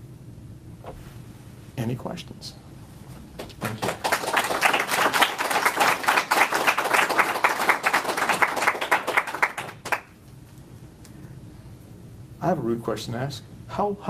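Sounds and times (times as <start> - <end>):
audience applauding: 3.4 - 10.2.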